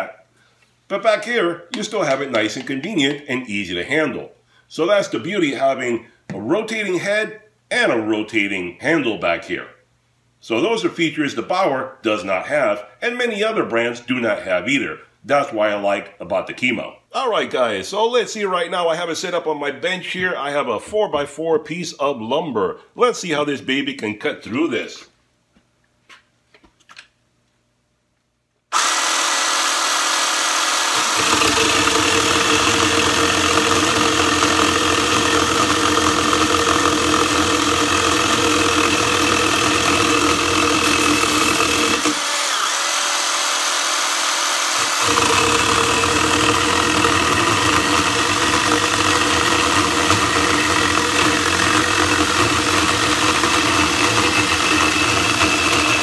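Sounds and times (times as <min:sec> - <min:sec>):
cordless chainsaw cutting wood: 0:28.7 - 0:56.0.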